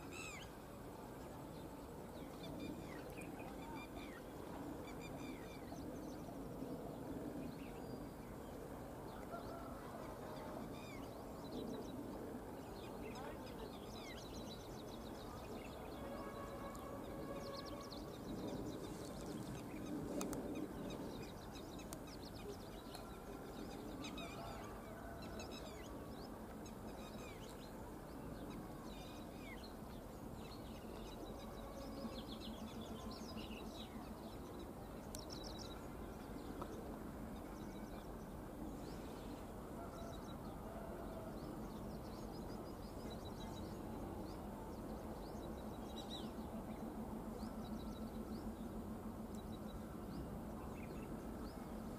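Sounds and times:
diesel locomotive engine drone: 35.6s - 51.9s.

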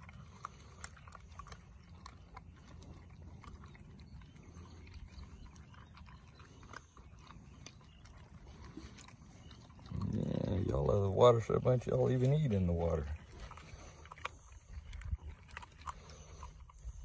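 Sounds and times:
puppies crunching dry kibble: 0.0s - 17.0s.

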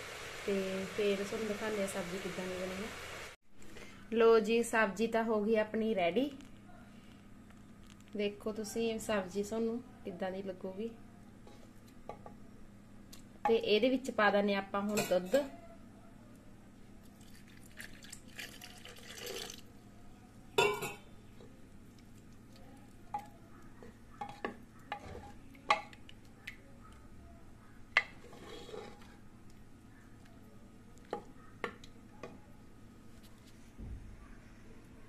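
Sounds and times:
wooden spoon stirring curry: 27.8s - 32.4s.

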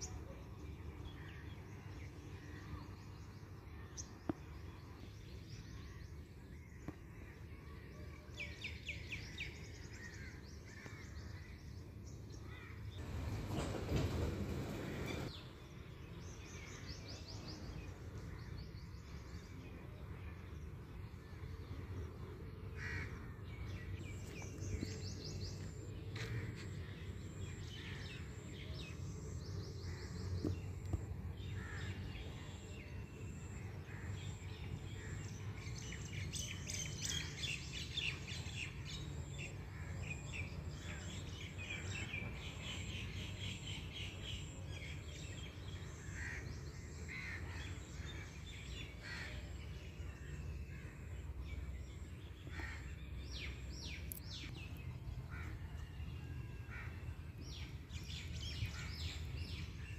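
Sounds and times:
low outdoor rumble: 9.3s - 59.9s
birds chirping and calling: 56.7s - 59.9s.

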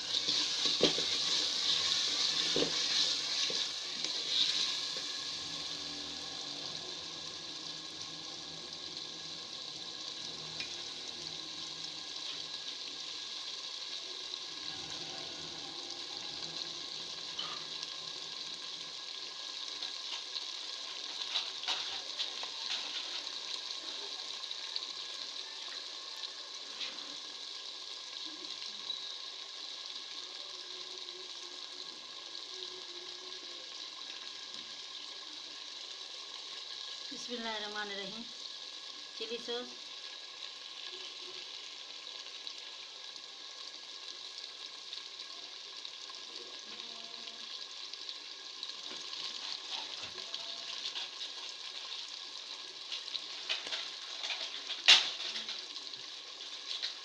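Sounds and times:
potatoes sizzling in a pot: 0.0s - 57.0s
wooden spoon scraping a pot: 0.1s - 5.1s, 19.9s - 23.6s, 49.1s - 52.2s.

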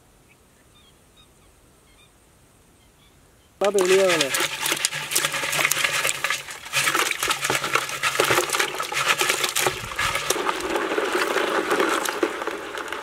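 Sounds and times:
crab shells clicking and scraping: 3.6s - 13.0s
small water splashes: 3.6s - 13.0s.

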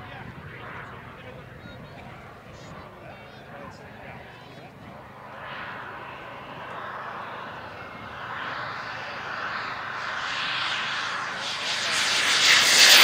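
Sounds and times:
jet turbine engine rushing: 4.7s - 13.0s.

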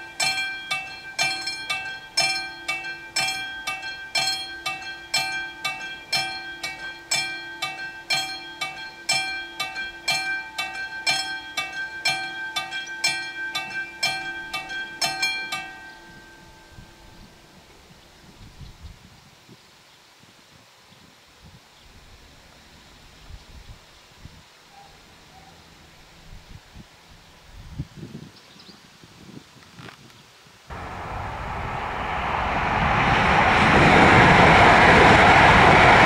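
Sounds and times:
level-crossing warning bell ringing: 0.0s - 17.5s.

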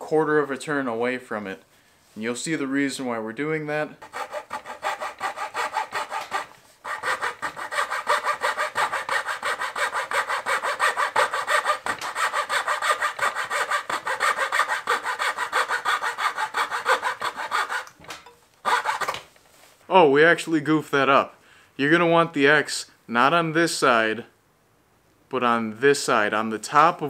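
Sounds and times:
hand saw cutting wood: 4.0s - 19.2s.

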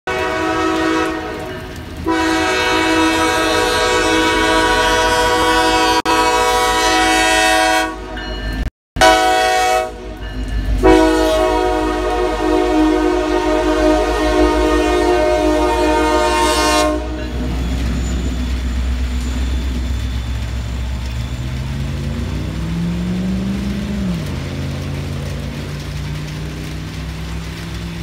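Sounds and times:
locomotive horn blasts: 0.1s - 8.3s, 9.0s - 18.4s
train rumble: 0.1s - 28.0s.

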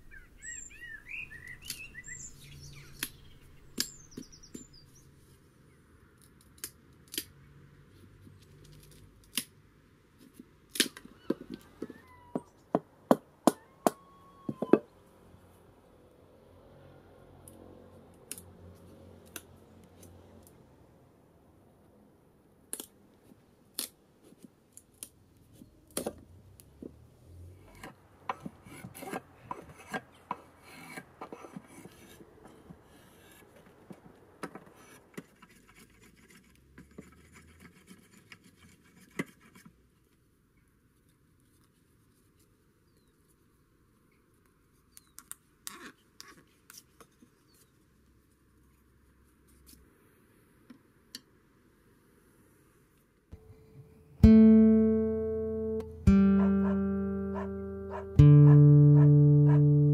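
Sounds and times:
blade scraping wood: 27.7s - 33.8s.

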